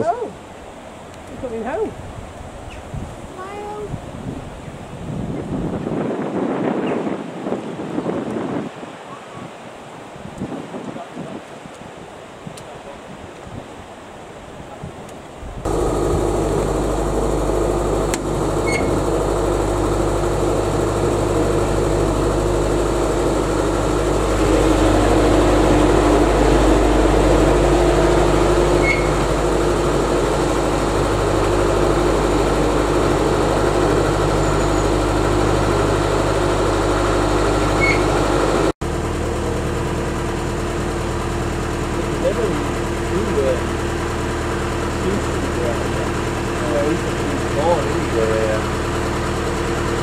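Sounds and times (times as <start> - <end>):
diesel engine humming: 15.7 - 50.0.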